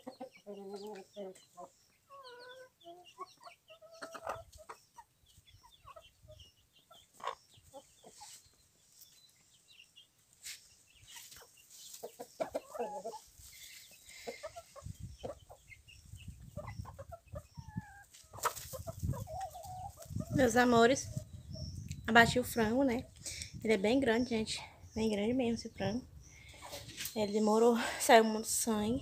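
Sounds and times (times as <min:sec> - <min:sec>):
chickens clucking softly: 0:00.0 - 0:09.4, 0:10.9 - 0:23.4.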